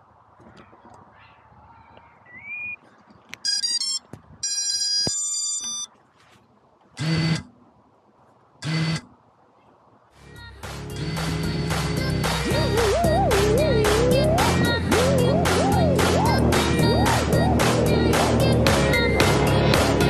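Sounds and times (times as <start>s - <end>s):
electronic beep tones: 3.4s - 5.9s
drone motors spinning up: 7.0s - 7.4s.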